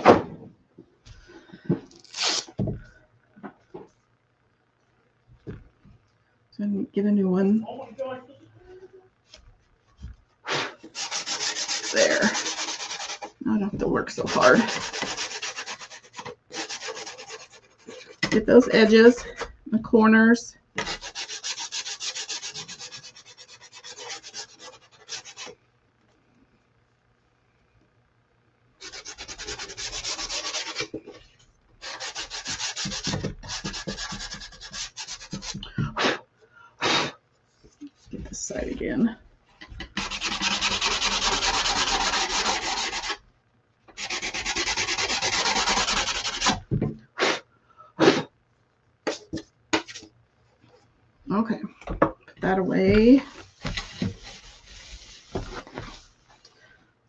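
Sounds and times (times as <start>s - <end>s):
finger sander scraping: 10.8s - 13.4s, 14.1s - 18.9s, 20.8s - 25.6s, 28.8s - 31.0s, 31.8s - 35.6s, 39.9s - 43.2s, 44.0s - 46.6s.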